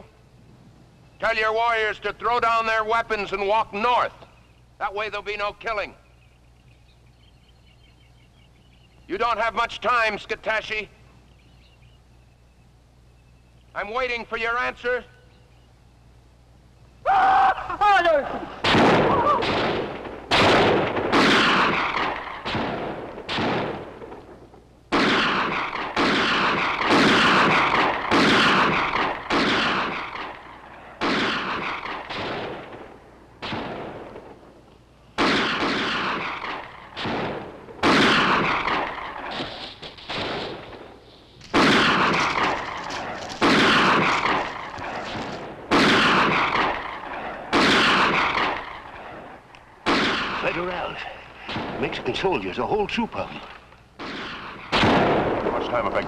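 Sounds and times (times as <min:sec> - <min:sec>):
gunshots with echo: 0:18.5 - 0:34.4, 0:35.2 - 0:52.4, 0:53.4 - 0:56.0.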